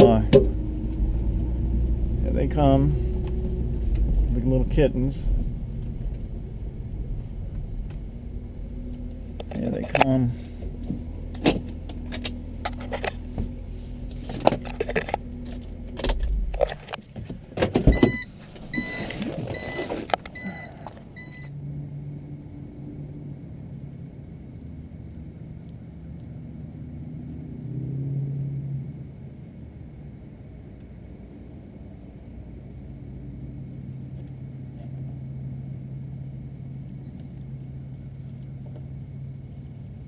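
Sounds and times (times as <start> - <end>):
car engine idling: 0.0 - 27.6
low hum: 0.0 - 40.0.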